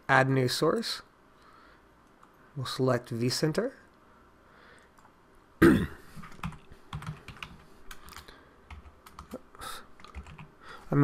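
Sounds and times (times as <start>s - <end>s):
person throat noise: 5.6s - 6.1s.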